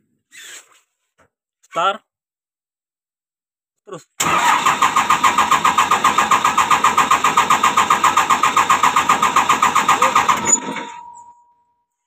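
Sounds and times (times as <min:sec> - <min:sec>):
starter motor whine: 0:04.2 - 0:10.9
diesel engine cranking: 0:04.2 - 0:11.2.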